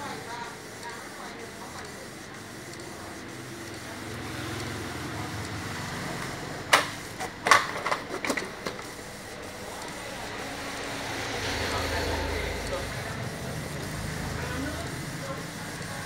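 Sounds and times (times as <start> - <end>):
machine hum: 8.8 - 15.9.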